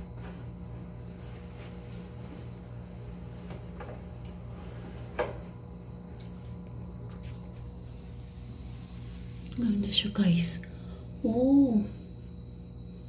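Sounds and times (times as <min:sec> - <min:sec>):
towel rustling and clicking on rail: 0:00.0 - 0:07.9
low pulsing hum: 0:00.0 - 0:13.0.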